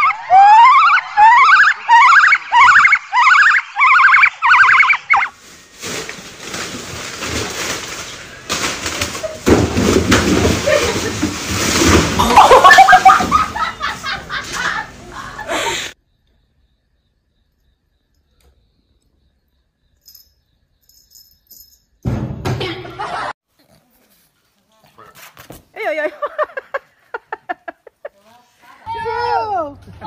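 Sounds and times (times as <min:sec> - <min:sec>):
cardboard boxes tumbling: 0:05.7 - 0:14.7.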